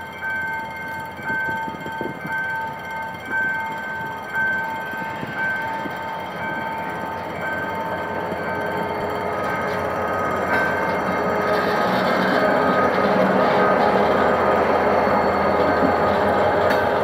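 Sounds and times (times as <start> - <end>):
level crossing bell ringing: 0.0 - 11.8
diesel locomotive running: 0.0 - 17.0.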